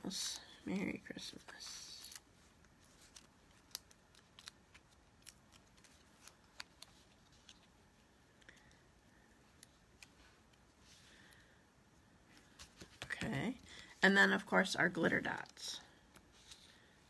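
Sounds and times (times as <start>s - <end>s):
paper and card clicks: 1.9s - 7.6s.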